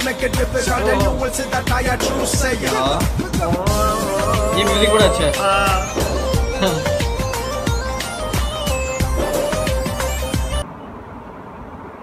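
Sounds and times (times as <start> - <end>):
music with steady beat and deep bass: 0.0 - 10.6.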